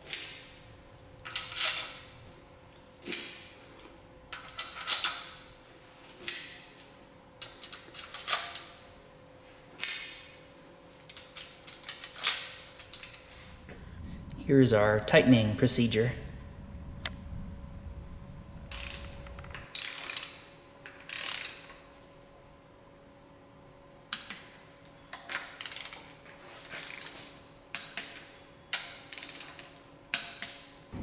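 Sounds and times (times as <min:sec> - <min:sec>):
torque wrench ratchet clicking: 0:21.0 - 0:21.7, 0:29.1 - 0:29.6.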